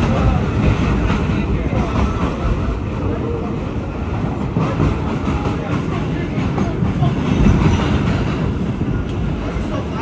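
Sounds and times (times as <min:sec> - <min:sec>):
subway car wheels rumbling: 0:00.0 - 0:10.0.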